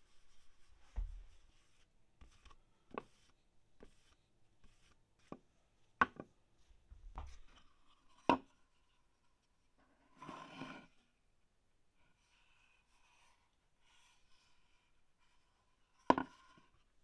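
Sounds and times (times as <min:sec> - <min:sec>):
wooden knocks on workbench: 0:01.0 - 0:01.2.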